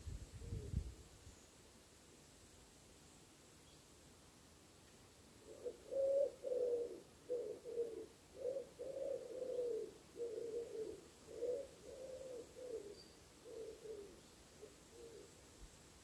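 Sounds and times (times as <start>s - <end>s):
pigeon cooing: 5.4s - 15.4s.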